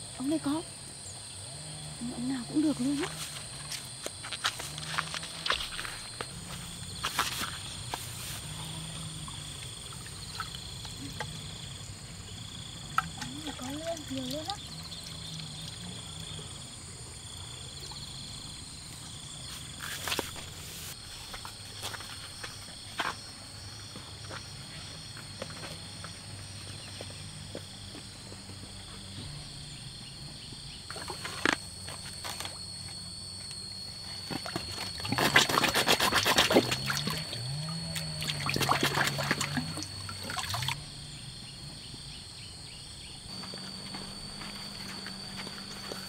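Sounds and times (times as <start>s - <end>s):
water splashing and trickling: 9.2s - 11.2s, 12.9s - 16.4s, 34.3s - 40.8s.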